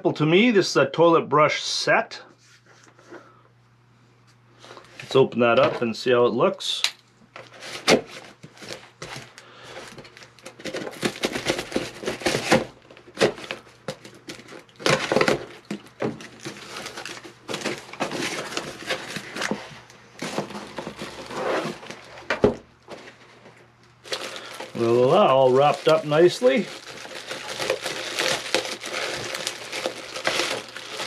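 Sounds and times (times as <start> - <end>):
tape and cardboard tearing: 7.4 - 9.3, 9.9 - 22.6, 24.1 - 31.0
hand rummaging inside box: 7.4 - 31.0
knife slitting packing tape: 27.0 - 31.0.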